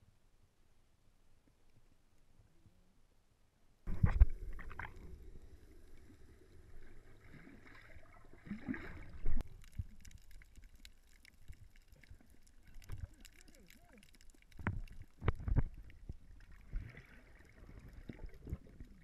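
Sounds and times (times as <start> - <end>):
water sloshing underwater: 3.9 - 19.0.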